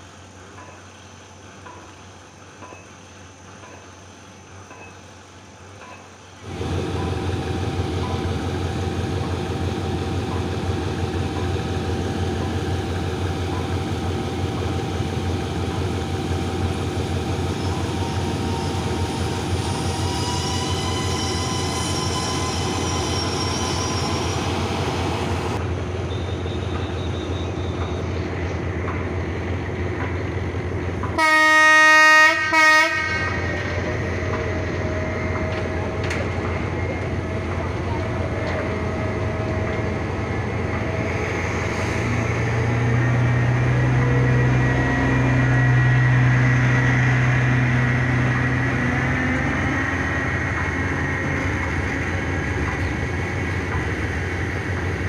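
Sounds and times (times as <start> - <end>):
diesel locomotive rumbling: 0.0 - 55.0
locomotive horn blasts: 31.2 - 33.6.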